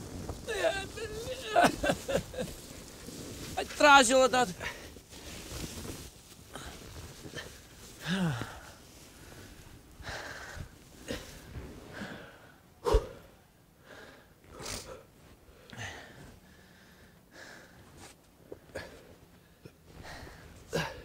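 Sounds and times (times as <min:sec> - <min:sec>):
man breathing hard and grunting: 0:10.0 - 0:17.7, 0:20.0 - 0:21.0.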